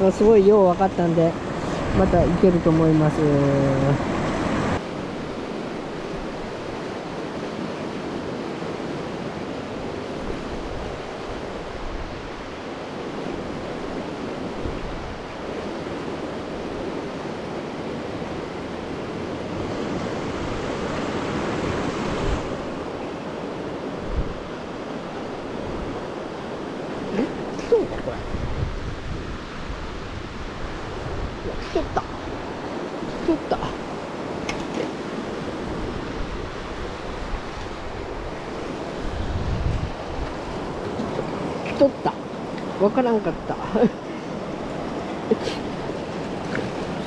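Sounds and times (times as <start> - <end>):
wind thumps on microphone: 27.5 - 32.4, 35.7 - 41.7
river rapids rushing: 29.0 - 47.0.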